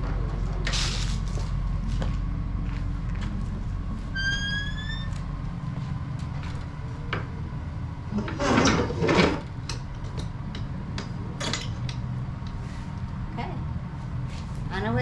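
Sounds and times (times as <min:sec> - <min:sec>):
vehicle road rumble: 0:00.0 - 0:15.0
rising squeak: 0:04.1 - 0:05.3.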